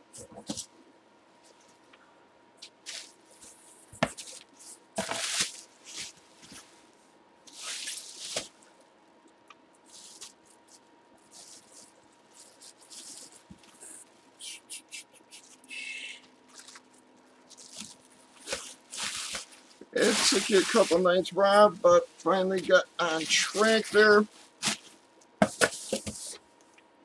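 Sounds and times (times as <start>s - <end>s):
bubble wrap crinkling: 2.6s - 6.8s, 7.5s - 8.7s, 9.8s - 14.5s, 16.4s - 26.4s.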